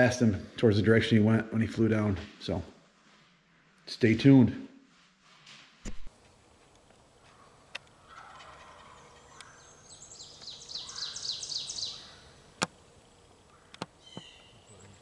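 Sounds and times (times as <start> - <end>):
turkey gobbling: 8.0 - 9.8
sharp clicks: 13.7 - 14.0.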